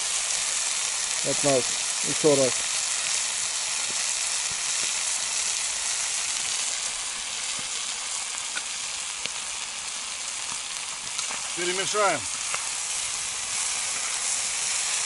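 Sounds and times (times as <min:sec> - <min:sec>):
food sizzling in a pan: 0:00.0 - 0:15.0
small pops: 0:07.5 - 0:07.8, 0:08.4 - 0:09.4, 0:10.4 - 0:11.6, 0:12.3 - 0:14.1.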